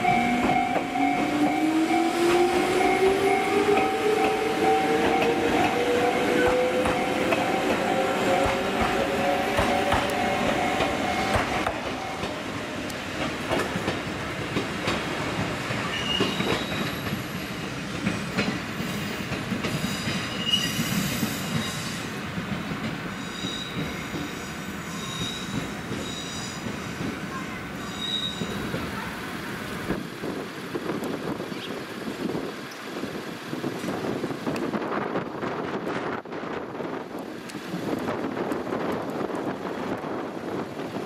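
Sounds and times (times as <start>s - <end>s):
train wheels clattering: 0.0s - 12.4s, 13.0s - 27.2s
high-pitched flange squeals: 27.7s - 28.6s.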